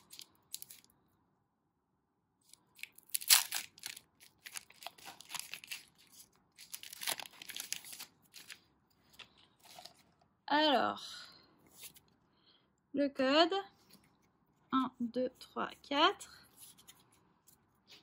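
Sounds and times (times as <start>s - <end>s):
foil wrapper tearing and crinkling: 0.0s - 0.9s, 2.5s - 8.6s.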